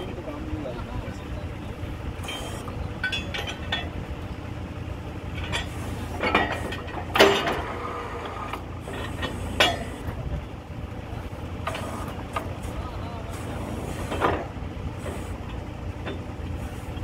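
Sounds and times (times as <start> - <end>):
drilling rig humming: 0.0 - 17.0
steel drill rods clanking: 2.2 - 4.0, 5.3 - 10.2, 11.6 - 17.0.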